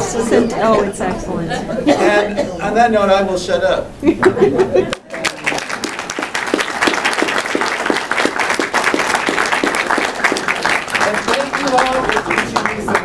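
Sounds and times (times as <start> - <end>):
audience applauding: 4.9 - 13.0.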